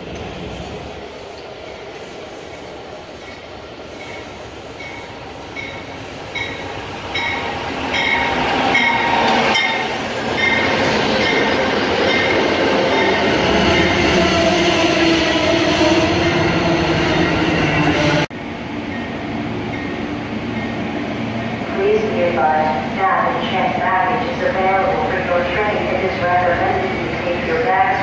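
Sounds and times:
locomotive bell ringing: 0:04.0 - 0:13.2.

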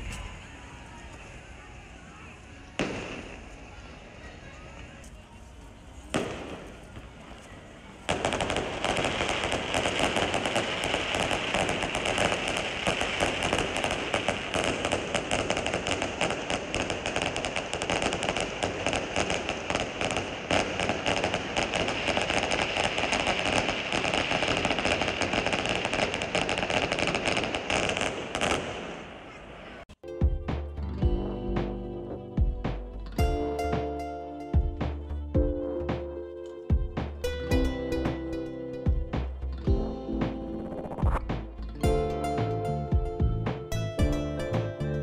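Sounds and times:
fireworks bangs and crackles: 0:02.7 - 0:05.1, 0:06.0 - 0:29.9.

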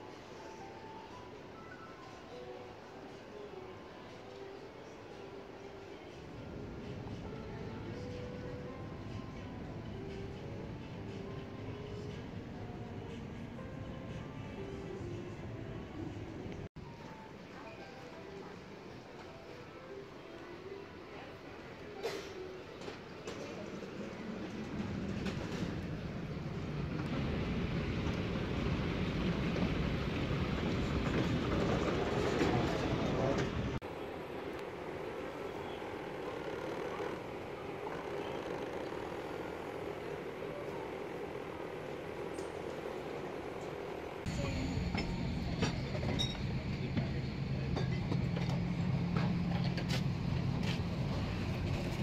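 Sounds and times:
busy airport terminal noise: 0:00.0 - 0:52.0
moving walkway rumble and clatter: 0:23.2 - 0:33.8, 0:43.6 - 0:52.0.

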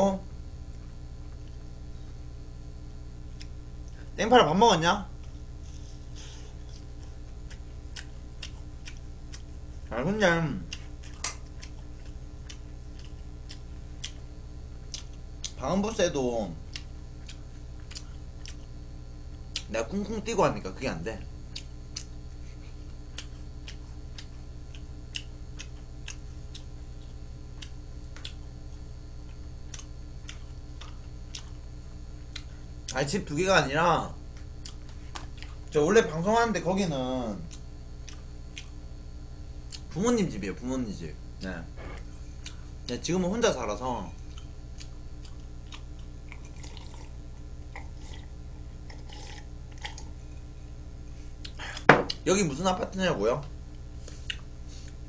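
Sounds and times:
steady low hum: 0:00.0 - 0:55.0
wet mouth sounds: 0:44.3 - 0:50.2
sipping and swallowing: 0:45.8 - 0:50.2.

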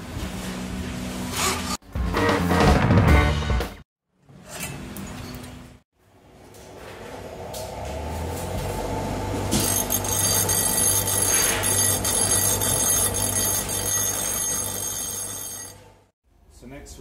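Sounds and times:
bench grinder motor hum: 0:08.2 - 0:15.8
high-pitched metal grinding screech: 0:09.6 - 0:15.6.

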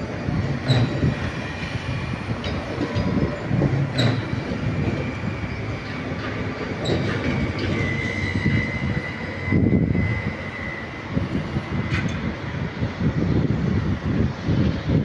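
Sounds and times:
train rumbling over track: 0:00.0 - 0:15.0
sharp clicks from track: 0:03.9 - 0:04.4, 0:11.9 - 0:12.3
thin wheel squeal: 0:06.8 - 0:11.8.

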